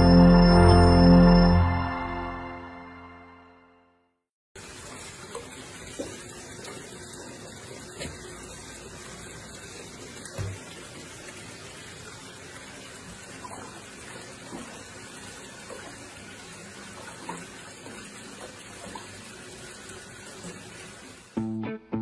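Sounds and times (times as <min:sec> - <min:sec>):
bath tap running into water: 0:04.6 - 0:21.4.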